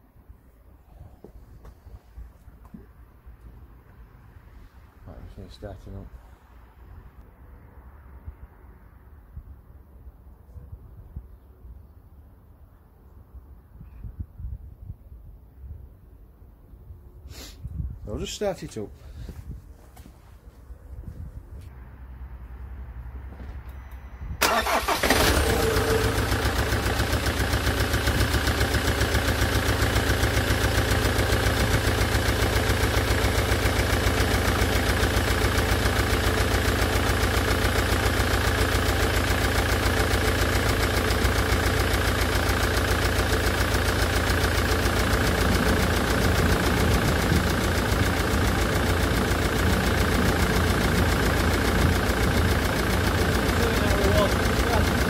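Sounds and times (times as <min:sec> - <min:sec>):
diesel engine cranking and idling: 0:21.6 - 0:55.0.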